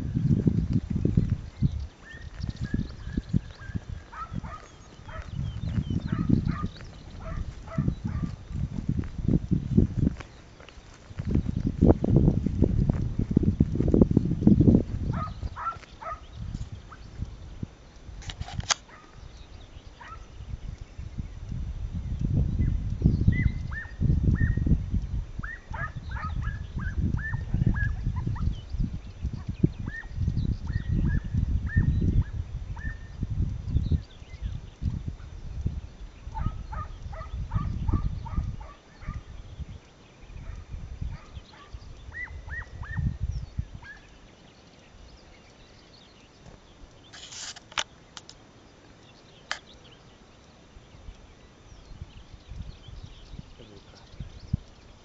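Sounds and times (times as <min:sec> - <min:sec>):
wind rumble on microphone: 0:00.0 - 0:48.8, 0:49.4 - 0:55.0
hound baying and yelping: 0:03.6 - 0:05.4, 0:06.1 - 0:08.4, 0:15.1 - 0:16.3, 0:20.0 - 0:20.3, 0:25.4 - 0:28.5, 0:36.4 - 0:39.3, 0:40.4 - 0:43.1, 0:43.8 - 0:44.1
distant animal high calls: 0:15.1 - 0:16.2, 0:40.4 - 0:43.1
sharp clicks: 0:15.5 - 0:19.2, 0:46.4 - 0:51.2.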